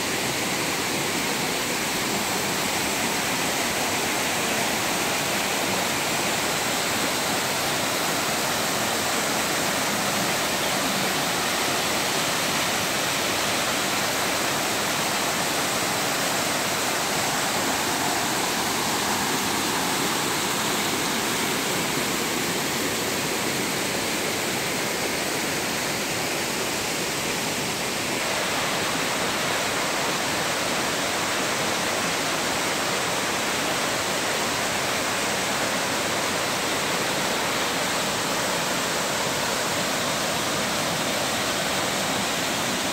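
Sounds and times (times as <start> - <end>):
waterfall rushing: 0.0 - 42.9.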